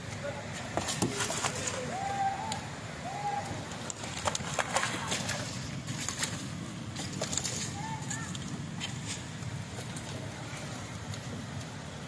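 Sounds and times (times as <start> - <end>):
fish flapping: 0.8 - 2.0, 3.7 - 9.2.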